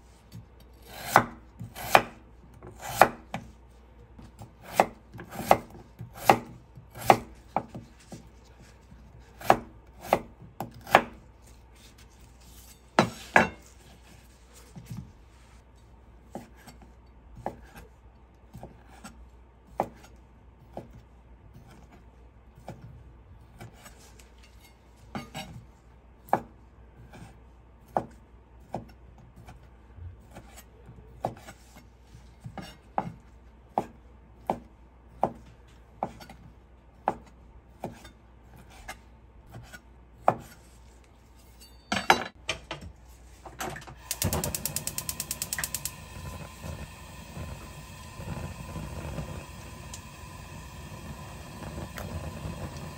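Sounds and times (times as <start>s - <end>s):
knife slicing food: 0.6s - 3.5s, 4.6s - 13.8s.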